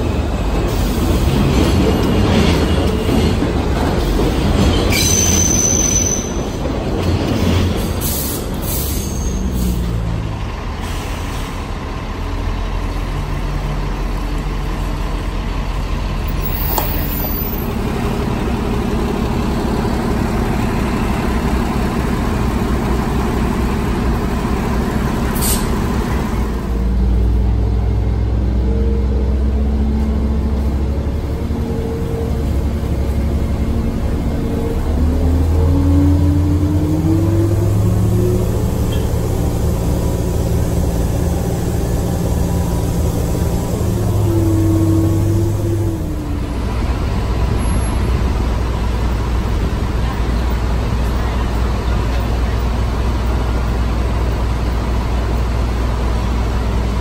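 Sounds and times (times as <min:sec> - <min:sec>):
brief high squeal: 0:04.9 - 0:06.5, 0:08.2 - 0:09.8
large engine running steadily: 0:08.5 - 0:57.0.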